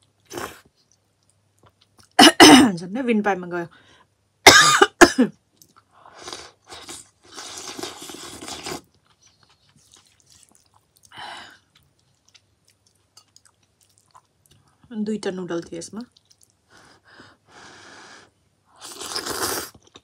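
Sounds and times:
quiet chewing: 0:00.0 - 0:02.2, 0:05.5 - 0:14.9, 0:15.6 - 0:17.0, 0:18.8 - 0:20.0
person coughing: 0:02.2 - 0:02.7, 0:04.5 - 0:05.3
slurping broth: 0:06.1 - 0:08.9, 0:18.8 - 0:20.0.

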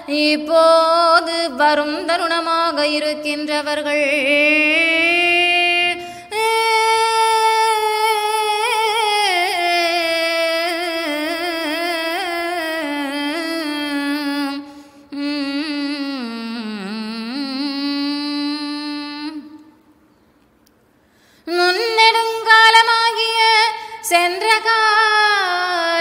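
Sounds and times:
person chanting devotional verse: 0:00.0 - 0:19.9, 0:21.4 - 0:26.0
singer breathing: 0:06.0 - 0:06.3, 0:14.6 - 0:15.1, 0:20.0 - 0:21.5, 0:23.8 - 0:24.1.

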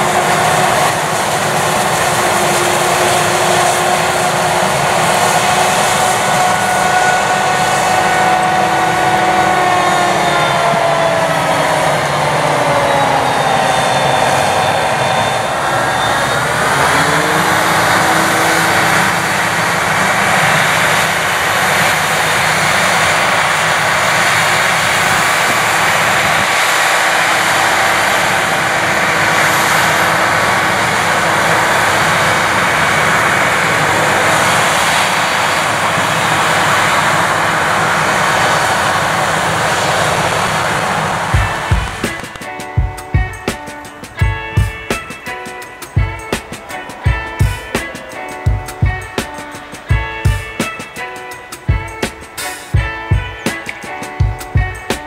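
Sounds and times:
forage harvester running: 0:00.0 - 0:12.7
machine whine: 0:00.0 - 0:55.0.

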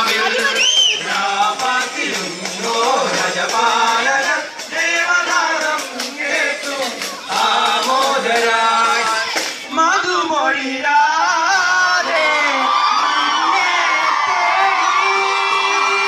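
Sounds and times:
musical accompaniment: 0:00.0 - 0:10.0
men singing carol into microphone: 0:00.0 - 0:16.0.

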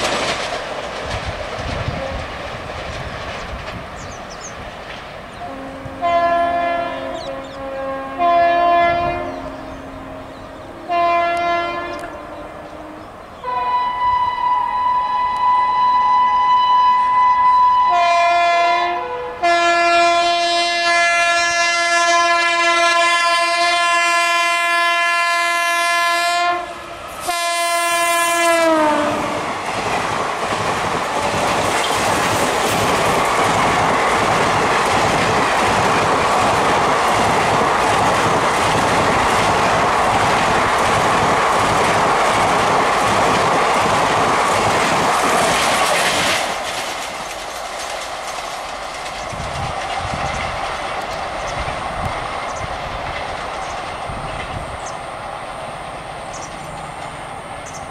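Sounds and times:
fast train rushing and clattering: 0:00.0 - 0:13.4, 0:14.0 - 0:57.9
locomotive air horns: 0:05.4 - 0:29.5.

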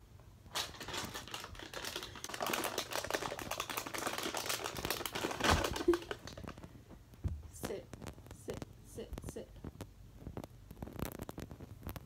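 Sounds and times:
plastic bag crinkling: 0:00.5 - 0:06.8.

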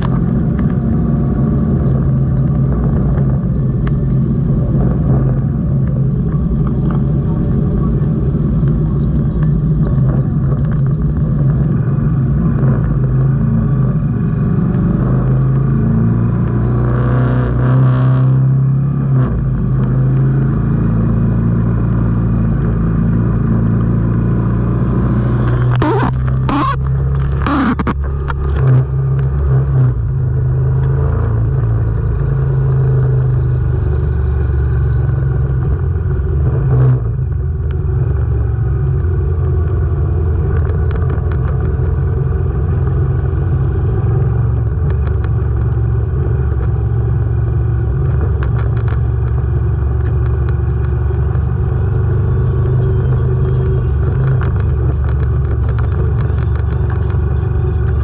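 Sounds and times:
motorcycle engine running: 0:18.5 - 0:58.0.

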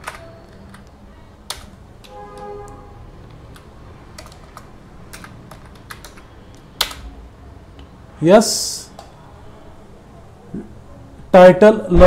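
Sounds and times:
keyboard keys clicking: 0:00.0 - 0:02.2, 0:03.2 - 0:07.1.

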